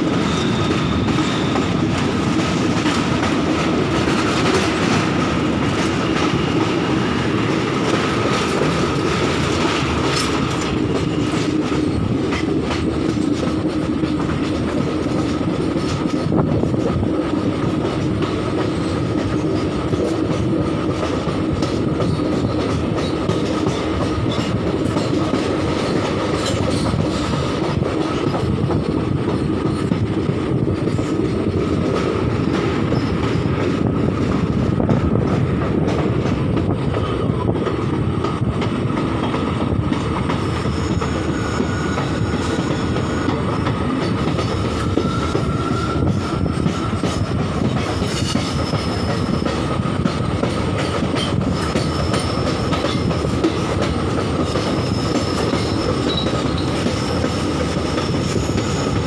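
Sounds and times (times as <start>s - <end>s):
high wheel squeal: 0.0s - 1.8s, 40.4s - 43.6s, 44.7s - 47.0s, 48.0s - 49.6s, 54.6s - 59.0s
train rumble: 0.0s - 59.0s.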